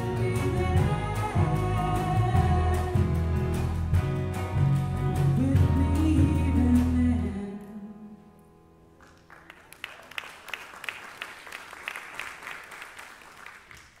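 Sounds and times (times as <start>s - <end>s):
congregation applauding: 9.0s - 14.0s.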